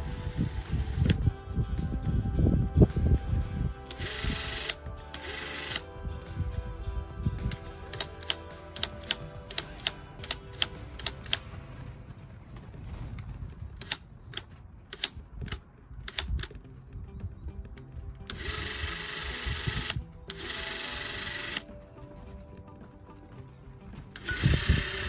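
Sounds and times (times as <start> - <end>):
film camera running: 0.0 - 1.2, 3.9 - 5.9, 7.5 - 11.4, 18.3 - 21.7, 24.2 - 25.0
film camera mechanical clicks: 3.9 - 5.8, 7.5 - 11.4, 13.8 - 16.6, 18.3 - 21.7.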